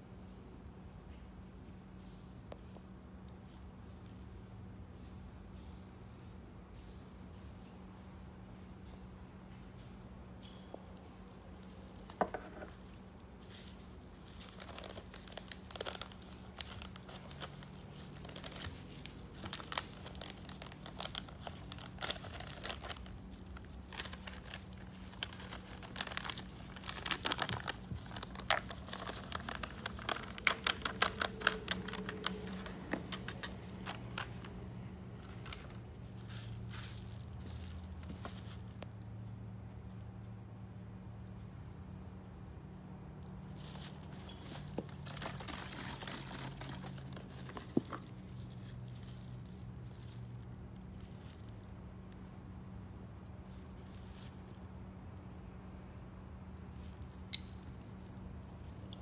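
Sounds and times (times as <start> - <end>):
steady low hum: 0.0 - 59.0
plastic gloves rustling: 10.9 - 38.8, 43.3 - 51.8, 53.4 - 55.2
plastic packaging crinkling and tearing: 11.6 - 38.8, 43.4 - 51.7.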